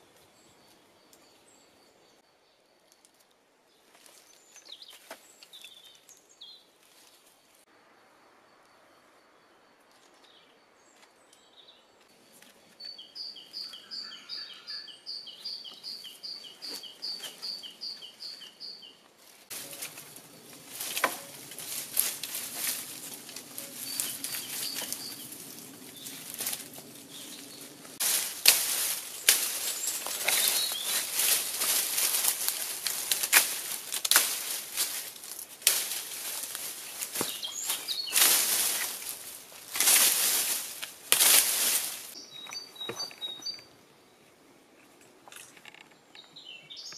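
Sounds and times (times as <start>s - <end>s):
dry straw rustling and crackling: 19.2s - 42.2s
sharp cracks: 28.0s - 36.4s, 39.7s - 41.9s.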